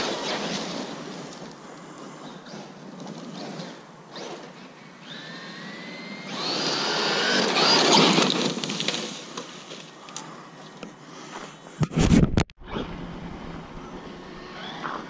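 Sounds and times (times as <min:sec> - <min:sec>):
rc truck electric motor whining: 0:00.0 - 0:09.3, 0:12.6 - 0:15.0.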